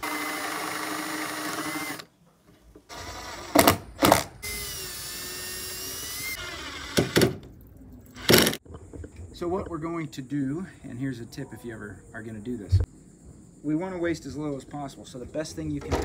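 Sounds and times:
cordless drill boring wood: 0:00.0 - 0:02.1, 0:02.9 - 0:07.4.

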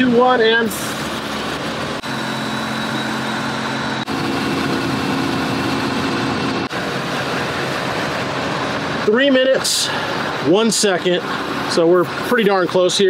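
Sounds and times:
car engine idling: 0:00.0 - 0:13.0
electric air compressor running: 0:00.8 - 0:09.0.

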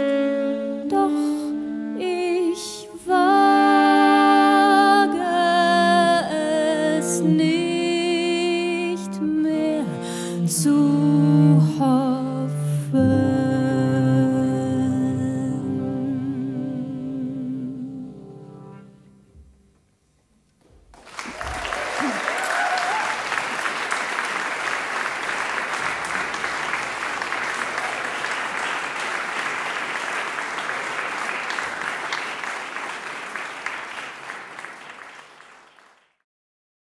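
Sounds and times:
audience applause: 0:20.9 - 0:36.2
audience cheering: 0:21.0 - 0:36.0.

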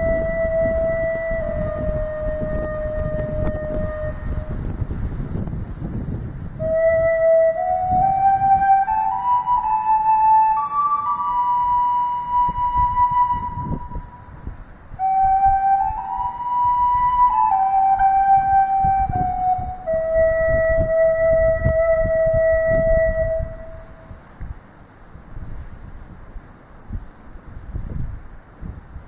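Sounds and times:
slow flute melody: 0:00.0 - 0:04.9, 0:06.6 - 0:24.1
wind buffeting microphone: 0:00.0 - 0:29.0.

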